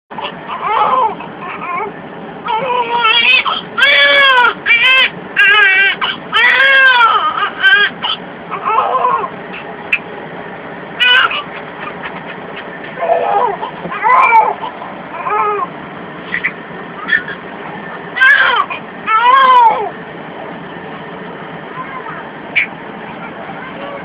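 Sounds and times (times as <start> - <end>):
newborn baby crying: 0.2 - 9.4, 11.0 - 12.1, 13.0 - 15.7, 18.1 - 20.0.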